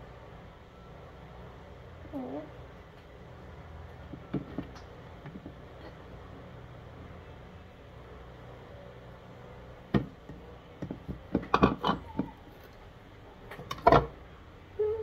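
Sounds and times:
faint low hum: 0.0 - 15.0
utensils knocking on plastic bowls: 10.8 - 12.4.

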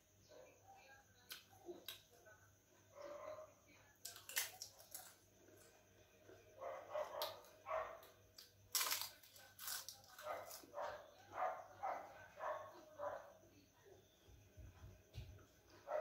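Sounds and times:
dog barking: 2.9 - 3.6, 6.6 - 8.1, 10.2 - 13.4, 15.8 - 16.0
crunchy snack being chewed: 4.0 - 5.7, 8.4 - 10.7.

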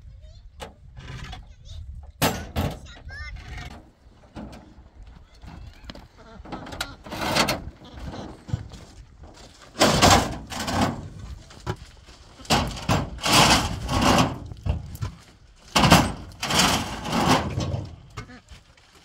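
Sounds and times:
concrete blocks grating on metal: 6.4 - 8.7, 9.7 - 11.2, 12.4 - 18.3.

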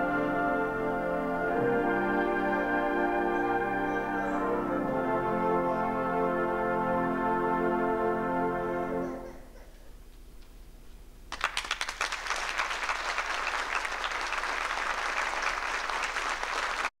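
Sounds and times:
wind band held chord: 0.0 - 9.5
audience applause: 11.3 - 16.9.

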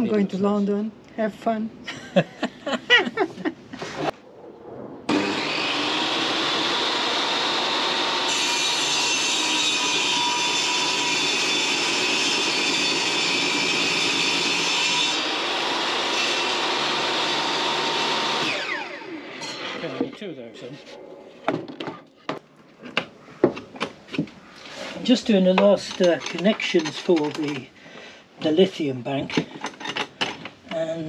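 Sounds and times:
table saw running: 5.1 - 19.8
saw cutting board: 5.1 - 20.1.

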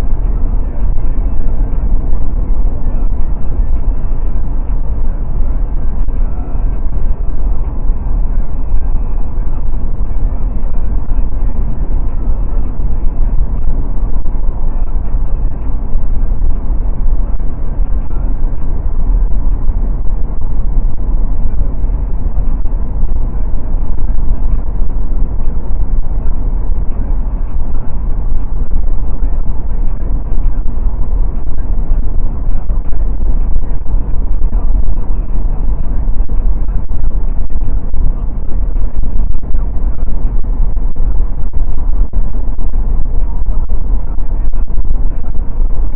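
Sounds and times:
car road and wind noise: 0.0 - 45.9.

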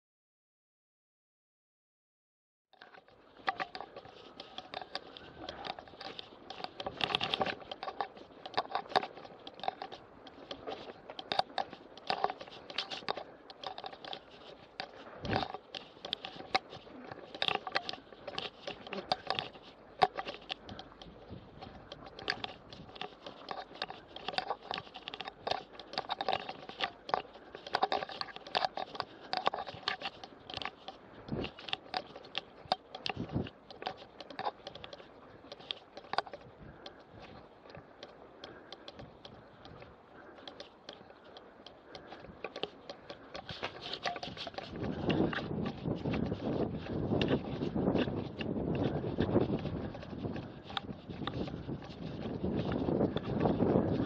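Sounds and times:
bike rattling over rough track: 2.9 - 54.0
grass brushing against bike: 3.0 - 54.0
wind noise on microphone: 3.3 - 54.0.

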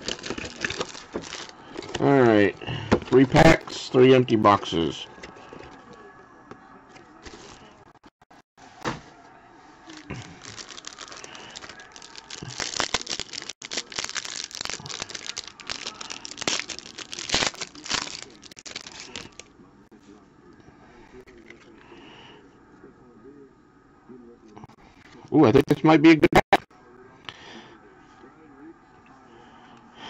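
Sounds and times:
plastic wrapper crinkling: 0.0 - 2.0, 9.9 - 19.5.

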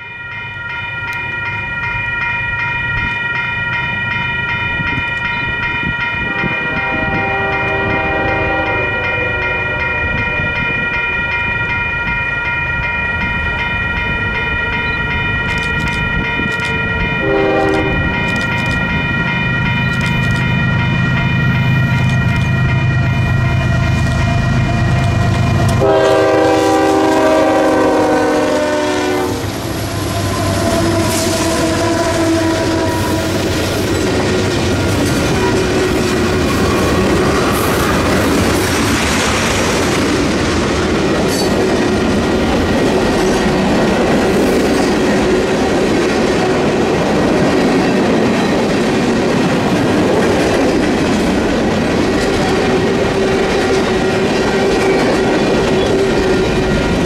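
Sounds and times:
train wheels clacking on rails: 1.0 - 57.0
locomotive horn blowing: 6.3 - 10.4, 17.2 - 18.2, 25.7 - 33.6.

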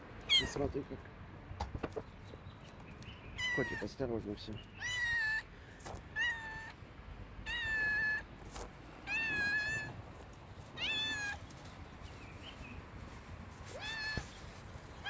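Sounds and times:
cat meowing: 0.3 - 0.6, 3.4 - 3.9, 4.8 - 5.5, 6.1 - 6.8, 7.4 - 8.3, 9.0 - 10.0, 10.8 - 11.4, 13.7 - 14.3.

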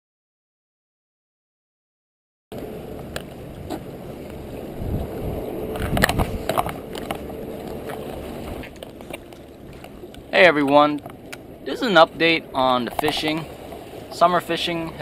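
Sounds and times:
wind rumbling on microphone: 2.5 - 15.0
fishing rod clicks and knocks: 5.7 - 11.5.

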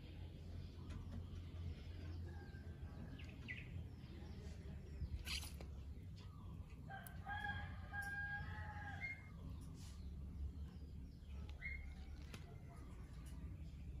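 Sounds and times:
rooster crowing: 6.9 - 9.3.

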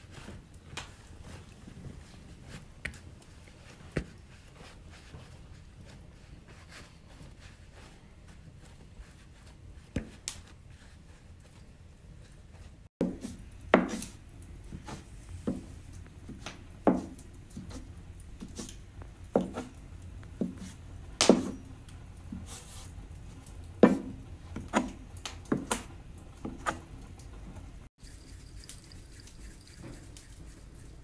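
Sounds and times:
dough scraper knocking on wood: 13.0 - 14.1, 16.9 - 17.2, 20.4 - 21.6, 23.8 - 26.8.

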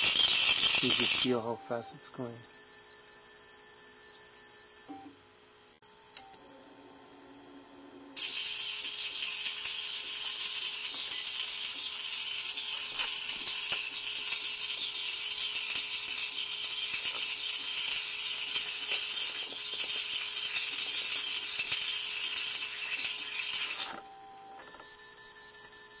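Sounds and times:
crackling electrical discharges: 0.0 - 2.3, 8.2 - 24.0.

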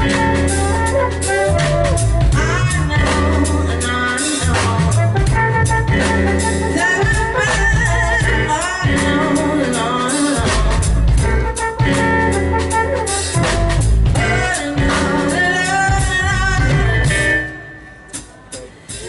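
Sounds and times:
low bass line: 0.0 - 17.6
drum kit: 0.0 - 19.0
keyboard: 0.0 - 19.0
woman singing into a microphone: 1.4 - 12.0, 14.2 - 17.7.

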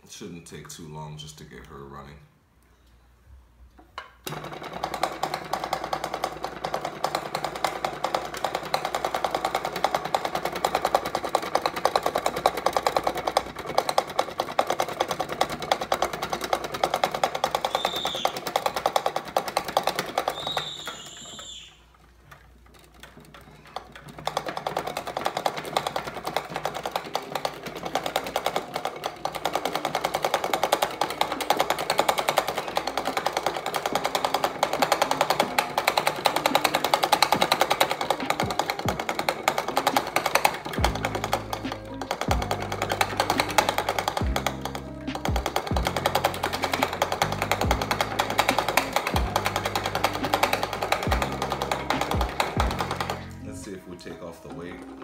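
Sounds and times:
small engine piston clattering: 3.9 - 55.0.

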